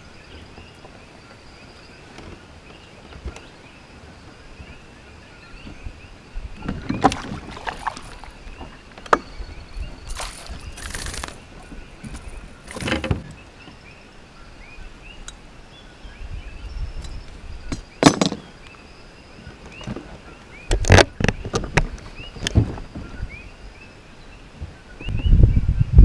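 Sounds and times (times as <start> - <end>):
fish splashing: 7.0 - 8.4, 10.0 - 11.6.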